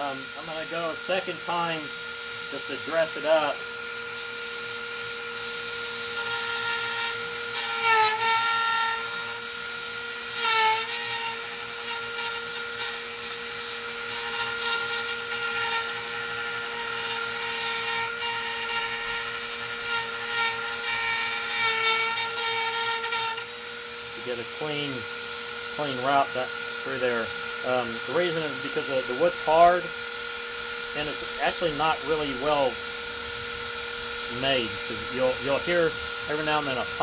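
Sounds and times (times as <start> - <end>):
rotary tool whining: 0.0 - 37.0
router bit cutting wood: 0.0 - 37.0.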